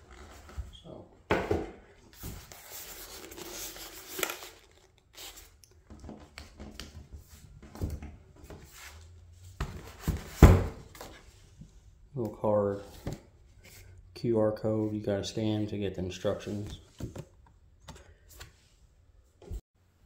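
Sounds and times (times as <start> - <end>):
paper rustling: 2.1 - 5.6.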